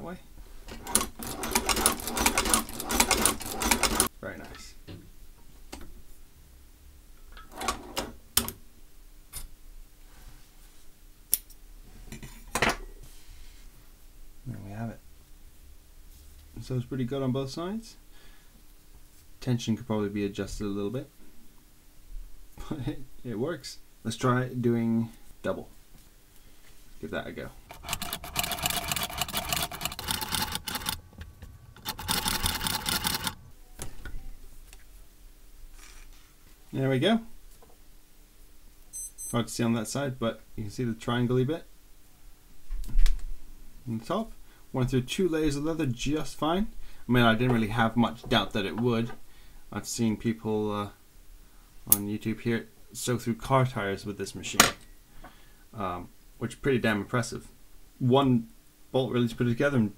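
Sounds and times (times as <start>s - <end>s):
sewing machine metallic clicks: 0.7s - 4.1s, 27.7s - 31.0s, 31.8s - 33.4s.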